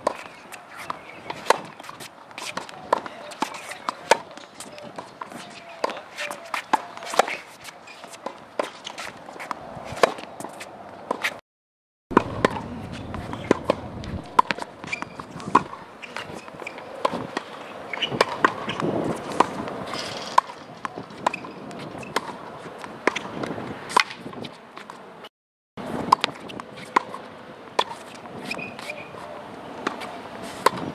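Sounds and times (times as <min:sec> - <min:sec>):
tennis ball bouncing: 0:00.0 - 0:11.4, 0:12.1 - 0:25.0, 0:26.1 - 0:30.9
tennis racket hitting ball: 0:00.0 - 0:11.4, 0:12.1 - 0:24.2, 0:29.8 - 0:30.9.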